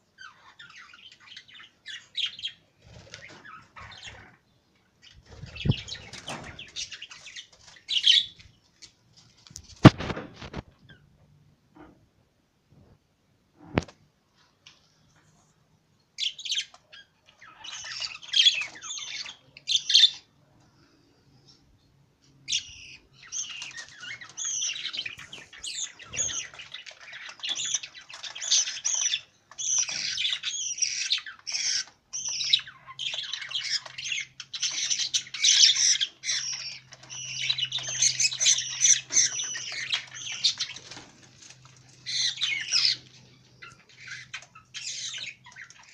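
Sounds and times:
budgerigars chattering and squawking: 5.0s - 8.4s, 16.2s - 20.3s, 22.5s - 41.1s, 42.0s - 45.9s.

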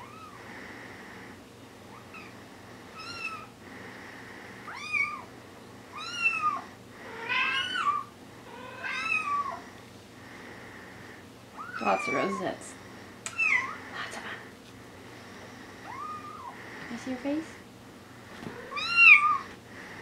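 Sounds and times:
kitten meowing: 7.2s - 9.6s, 13.3s - 13.8s, 18.6s - 19.5s.

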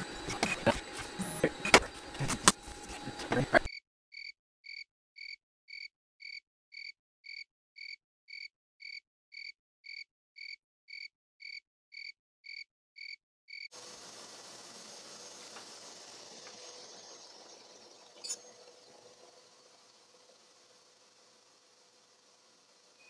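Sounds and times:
room noise hiss: 13.8s - 23.0s.

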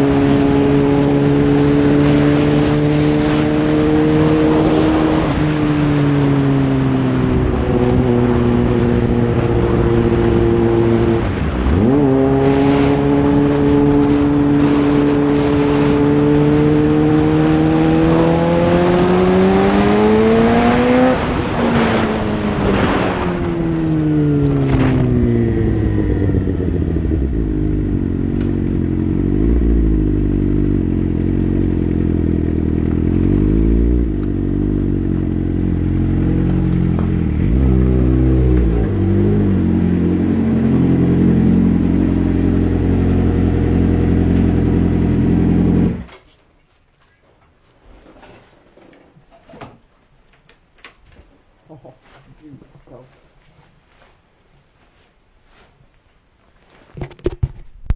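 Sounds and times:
wind noise: 0.0s - 28.6s
motorcycle engine revving: 0.0s - 46.1s.

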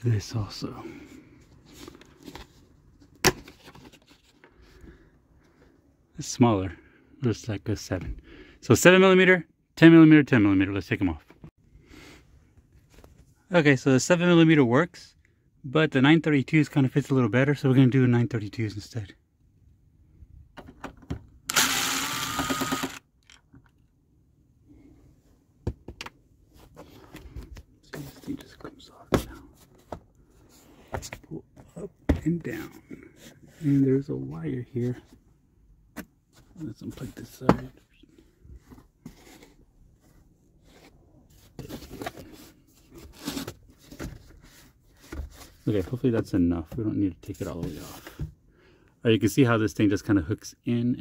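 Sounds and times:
power drill whine: 21.5s - 23.0s.

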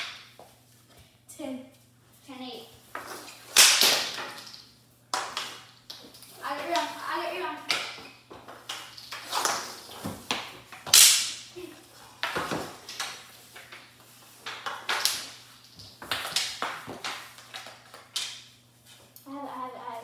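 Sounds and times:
plastic hockey sticks clacking: 2.9s - 11.6s, 12.2s - 18.5s.

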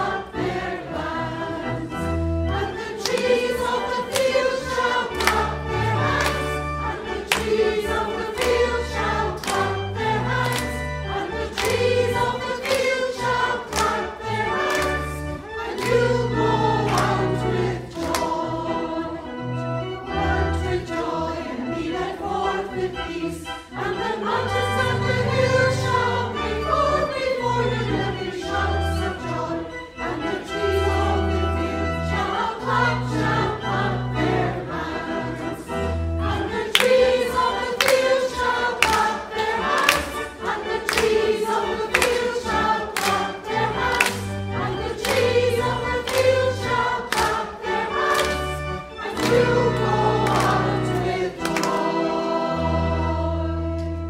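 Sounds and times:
choir singing: 0.0s - 54.0s
instrumental accompaniment with bass: 0.0s - 54.0s.

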